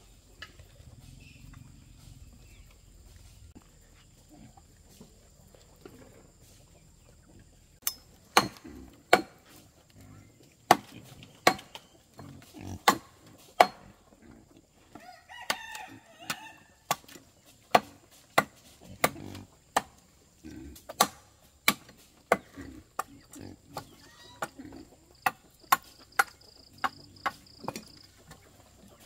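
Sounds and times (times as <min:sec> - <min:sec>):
rooster crowing: 0:15.0 - 0:16.8.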